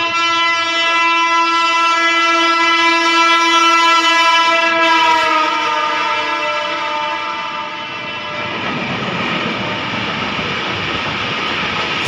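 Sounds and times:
train horn blast: 0.0 - 8.9.

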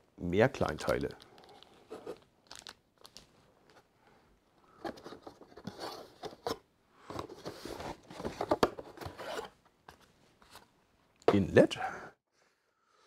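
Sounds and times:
cardboard rustling and scraping: 4.8 - 10.7.

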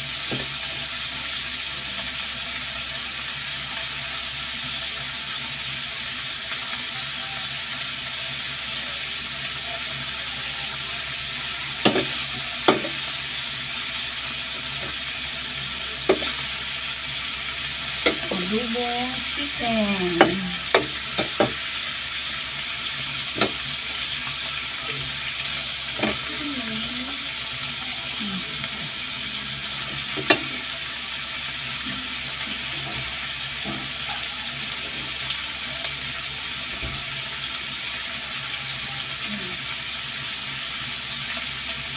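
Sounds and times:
chicken sizzling in a pan: 0.0 - 41.9
spatula knocking and scraping pan: 11.8 - 13.0, 16.0 - 16.5, 18.0 - 18.4, 20.1 - 21.6, 23.3 - 23.6.

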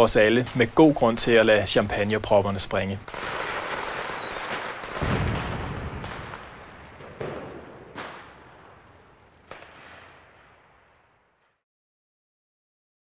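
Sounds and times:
fireworks crackling hiss: 2.8 - 10.8
fireworks deep boom: 3.0 - 11.6
fireworks sharp bangs: 3.0 - 11.6.

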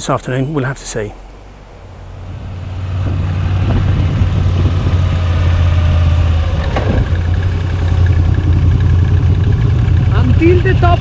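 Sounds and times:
motorcycle engine running: 2.4 - 11.0.

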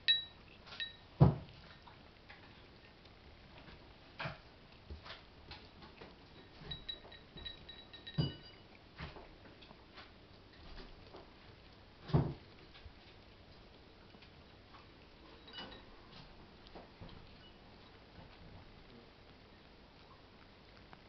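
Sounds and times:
cat chewing and lip-smacking: 0.1 - 21.0.

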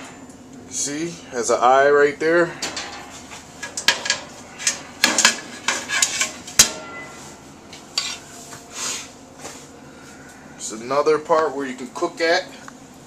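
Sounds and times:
metal clanks on grill and stove: 2.4 - 8.3.

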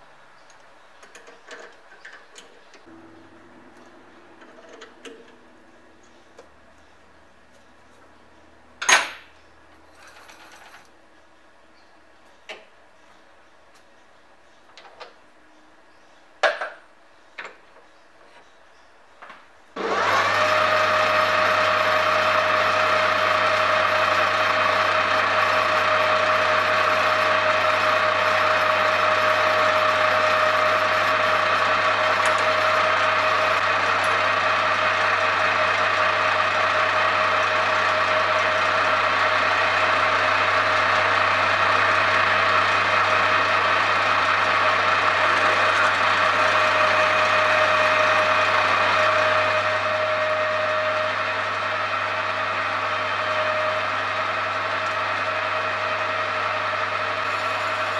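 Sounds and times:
metal lathe humming: 19.8 - 57.9.

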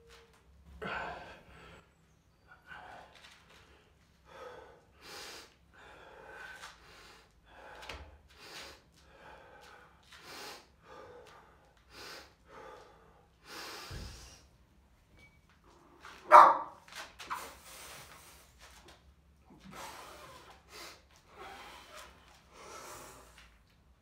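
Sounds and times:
man breathing hard: 0.8 - 2.0, 4.2 - 14.6, 19.5 - 23.6.

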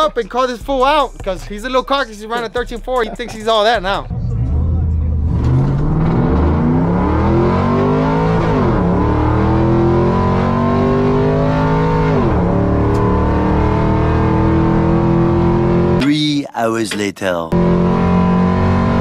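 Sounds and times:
truck engine at full throttle: 2.9 - 16.0, 17.6 - 19.0.

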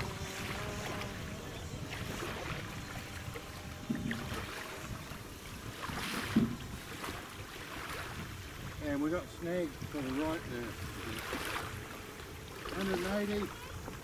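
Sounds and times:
drone motors whining: 0.0 - 5.8
wind rumble on microphone: 0.0 - 14.0.

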